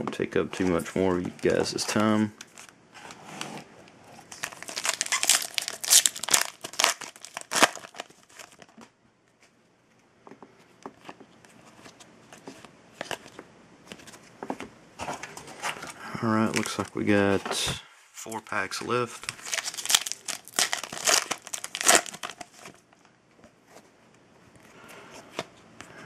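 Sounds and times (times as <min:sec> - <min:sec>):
cards rustling when handled: 0:04.3 - 0:08.7, 0:15.0 - 0:17.7, 0:18.3 - 0:22.8
foil wrapper crinkling and tearing: 0:04.3 - 0:08.8, 0:19.2 - 0:22.8.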